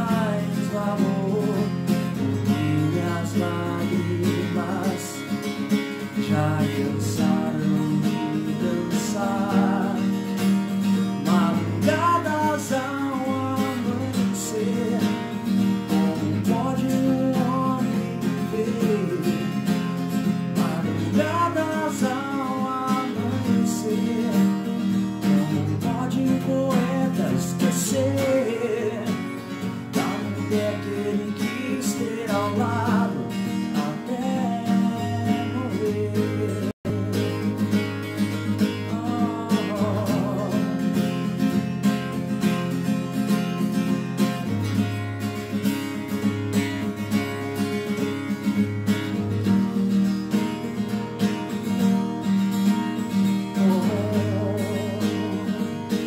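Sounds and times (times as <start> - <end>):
man singing: 0.0 - 41.6, 53.0 - 56.0
acoustic guitar strumming: 0.0 - 56.0.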